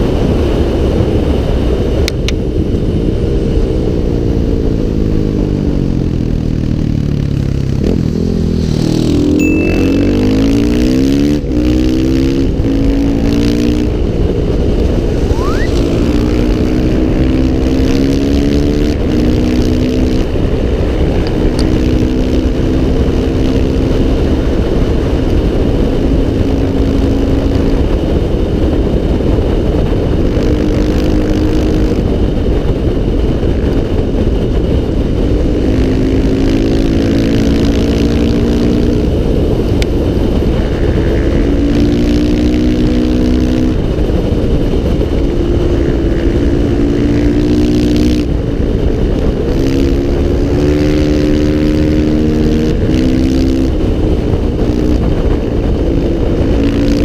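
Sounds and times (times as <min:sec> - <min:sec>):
rushing wind: 0:00.0 - 0:57.0
dirt bike engine accelerating: 0:05.8 - 0:28.8.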